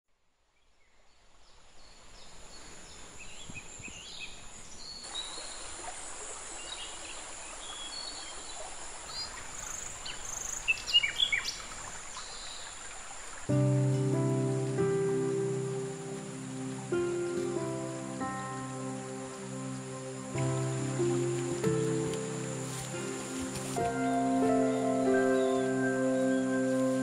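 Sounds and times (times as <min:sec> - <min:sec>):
high insect drone: 0:13.3 - 0:27.0.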